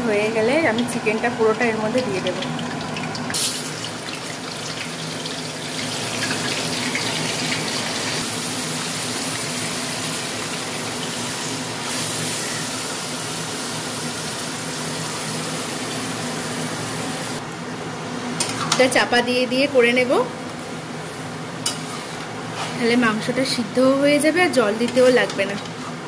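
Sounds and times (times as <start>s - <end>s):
chicken sizzling in hot oil: 0.5s - 17.4s.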